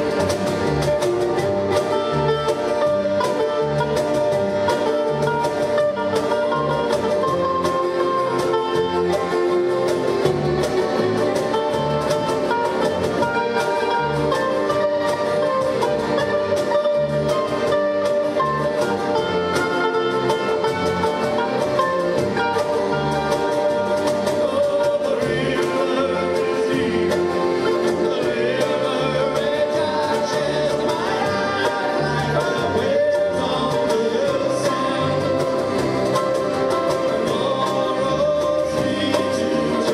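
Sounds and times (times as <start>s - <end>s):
accordion: 0.0s - 39.9s
acoustic guitar: 0.0s - 39.9s
cajon beat: 0.0s - 39.9s
mandolin: 0.0s - 39.9s
person singing: 24.2s - 39.9s.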